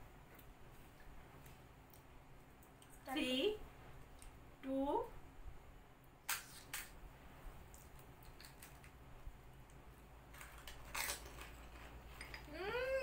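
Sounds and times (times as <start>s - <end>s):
fried shells cracking: 7.7s - 9.0s, 10.3s - 12.4s.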